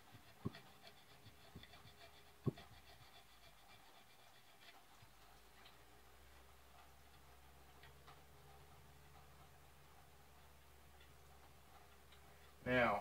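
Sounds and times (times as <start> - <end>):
knife scraping wood: 0.0 - 5.5
sharp wooden thuds: 2.4 - 2.7.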